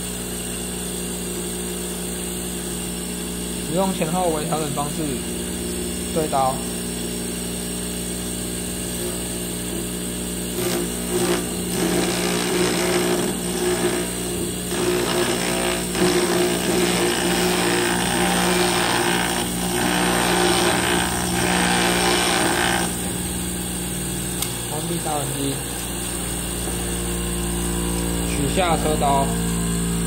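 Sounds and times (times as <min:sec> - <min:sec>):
bench grinder running: 0:00.0 - 0:30.0
metal grinding on wheel: 0:10.6 - 0:23.4.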